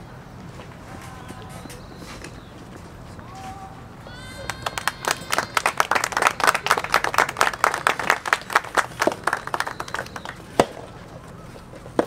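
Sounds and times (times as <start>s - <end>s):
crowd clapping: 4.4s - 10.7s.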